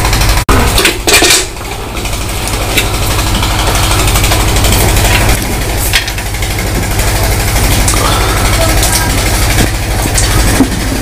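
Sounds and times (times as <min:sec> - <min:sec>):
engine throbbing: 0:00.0 - 0:11.0.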